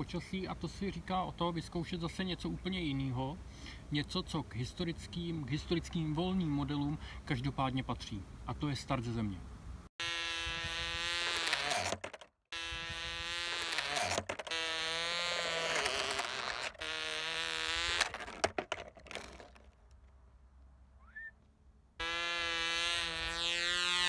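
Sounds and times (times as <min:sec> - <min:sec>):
model plane motor buzzing: 0:10.0 - 0:19.6, 0:22.0 - 0:24.0.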